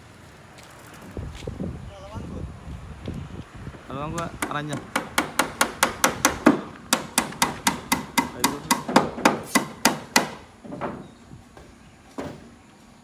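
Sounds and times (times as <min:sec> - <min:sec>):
hammer striking nails into timber: 0:04.1 - 0:10.5.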